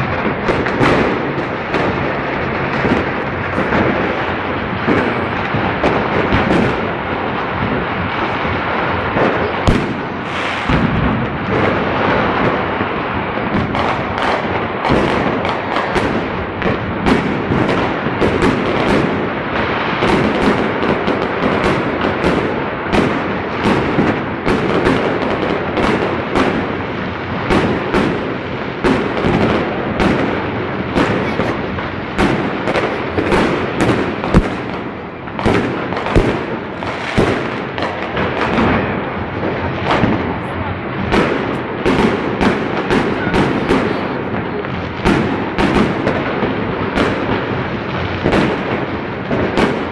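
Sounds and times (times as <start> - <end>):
fireworks and firecrackers banging: 0.0 - 49.9.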